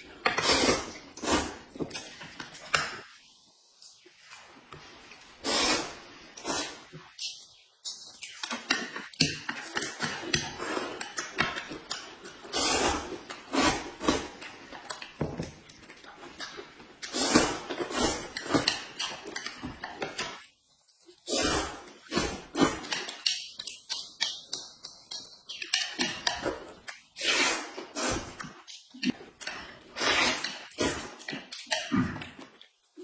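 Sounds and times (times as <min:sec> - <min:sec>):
noodles slurped and chewed: 0:00.0 - 0:02.4, 0:05.0 - 0:20.4.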